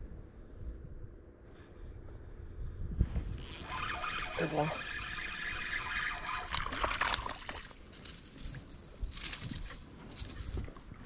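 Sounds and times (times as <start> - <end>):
water splashing and sloshing: 3.4 - 11.0.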